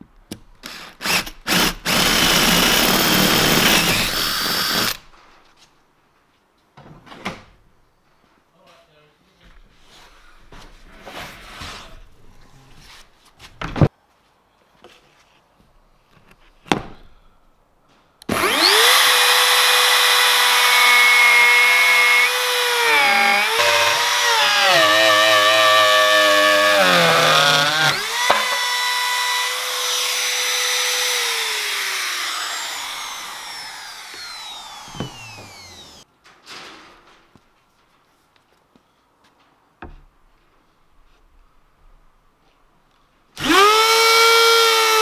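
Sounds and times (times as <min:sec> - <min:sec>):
trim router whining: 0:00.7 - 0:05.0, 0:18.3 - 0:36.0, 0:43.4 - 0:45.0
knocks: 0:28.2 - 0:28.7.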